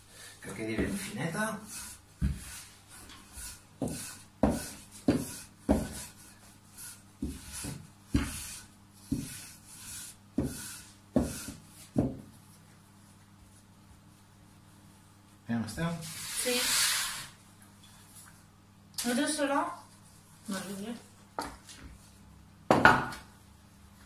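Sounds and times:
rolling pin rubbing dough: 0:00.7 - 0:12.4
rolling pin knocking on worktop: 0:03.8 - 0:06.0, 0:10.4 - 0:12.3, 0:22.7 - 0:23.2.

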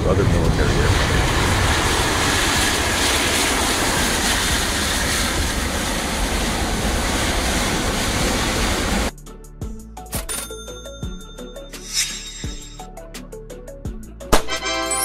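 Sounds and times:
jet engines running: 0:00.0 - 0:09.1.

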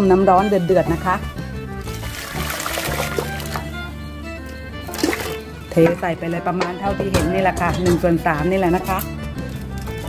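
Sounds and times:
background music: 0:00.0 - 0:10.0
water poured into a pot: 0:01.8 - 0:03.8, 0:04.9 - 0:05.4.

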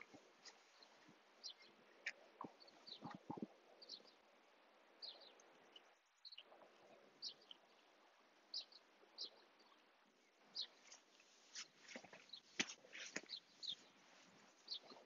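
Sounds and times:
faint bird chirps: 0:00.0 - 0:04.3, 0:05.0 - 0:11.0.

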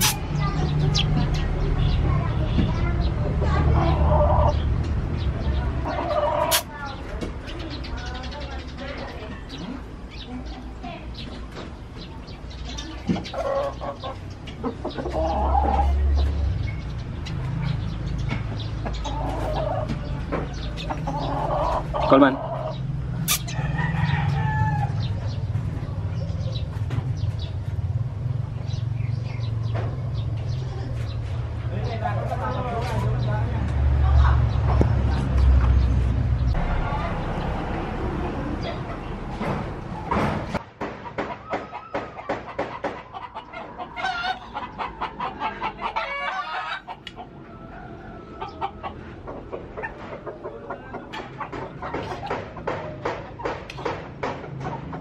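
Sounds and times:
baby sparrow chirping: 0:00.0 - 0:23.7
chickens clucking: 0:00.0 - 0:55.0
rooster crowing: 0:23.5 - 0:25.0, 0:46.0 - 0:49.2.

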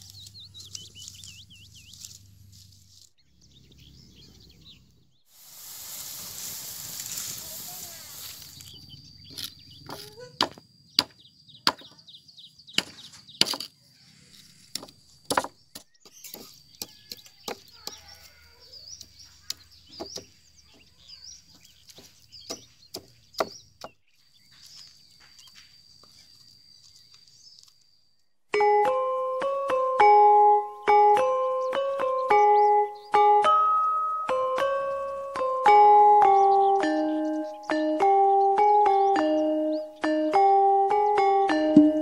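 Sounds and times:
pestle striking wooden mortar: 0:09.9 - 0:11.9, 0:14.8 - 0:18.0, 0:22.0 - 0:24.0
pestle scraping: 0:14.5 - 0:18.2.

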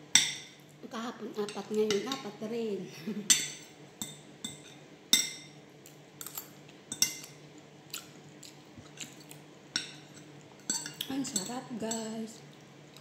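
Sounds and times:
soft chewing: 0:05.8 - 0:11.2, 0:12.4 - 0:13.0
cutlery clinking on a plate: 0:06.2 - 0:07.4.

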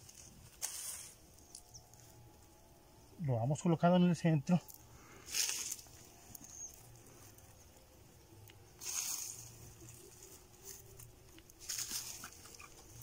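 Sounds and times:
hands scraping soil: 0:00.0 - 0:02.1, 0:08.5 - 0:13.0.

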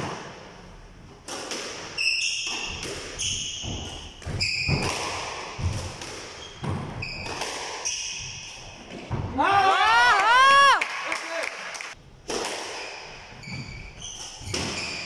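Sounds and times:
squash ball hits: 0:01.2 - 0:09.4, 0:12.2 - 0:13.7, 0:14.4 - 0:15.0
shoes squeaking on court floor: 0:01.8 - 0:09.2, 0:12.8 - 0:15.0.

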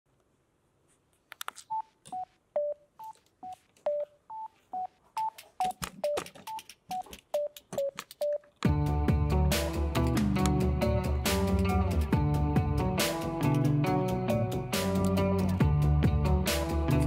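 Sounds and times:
keypad key clicks with beeps: 0:05.2 - 0:08.6
music track: 0:05.2 - 0:17.0.

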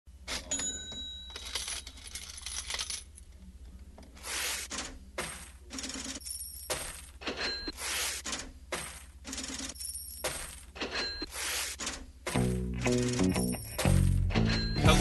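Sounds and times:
coins clattering and clinking: 0:00.3 - 0:03.2, 0:04.7 - 0:12.0.

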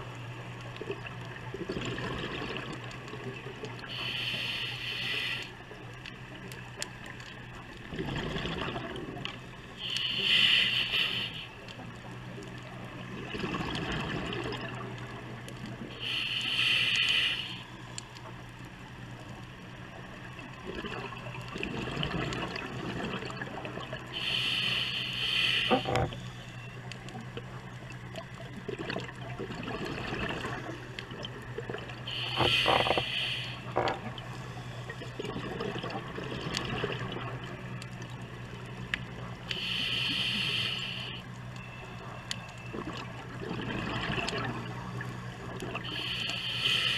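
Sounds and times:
steady low hum: 0:00.0 - 0:46.9
bubbling underwater: 0:00.9 - 0:02.9, 0:07.9 - 0:09.2, 0:28.6 - 0:33.0, 0:35.0 - 0:37.5, 0:42.7 - 0:44.6
diver breathing through regulator: 0:03.8 - 0:05.6, 0:09.8 - 0:11.7, 0:16.0 - 0:17.7, 0:24.1 - 0:26.2, 0:32.1 - 0:34.0, 0:39.5 - 0:41.2, 0:45.8 - 0:46.9.

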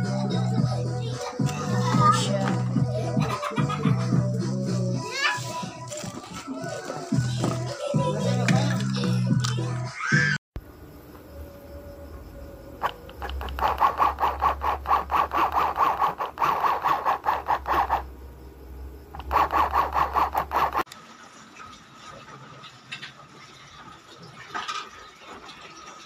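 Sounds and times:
sewing machine stitching: 0:12.8 - 0:18.1, 0:19.2 - 0:20.9.

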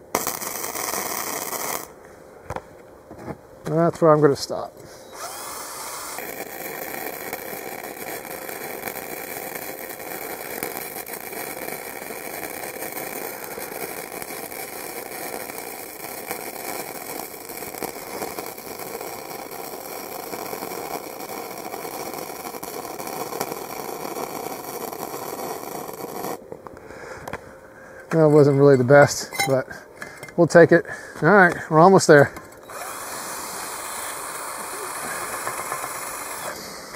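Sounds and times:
welding arc crackling: 0:00.0 - 0:02.0, 0:05.2 - 0:26.4, 0:32.7 - 0:36.9.

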